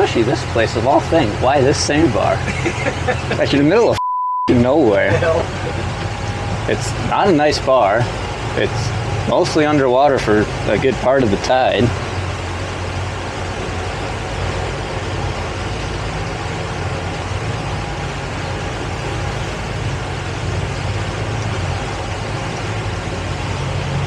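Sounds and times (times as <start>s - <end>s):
boat engine running: 0.0s - 24.0s
wind and water rushing: 0.0s - 24.0s.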